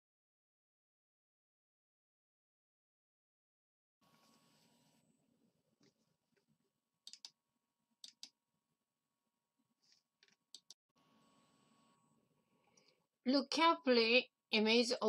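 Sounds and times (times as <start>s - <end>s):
faint computer mouse clicks: 7.1s - 7.3s, 8.0s - 8.3s, 9.9s - 10.8s.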